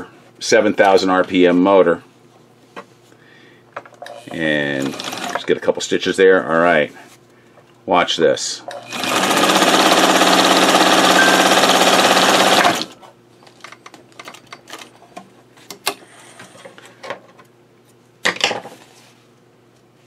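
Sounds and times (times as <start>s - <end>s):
sewing machine stitching: 4.3s - 5.4s, 8.7s - 13.0s.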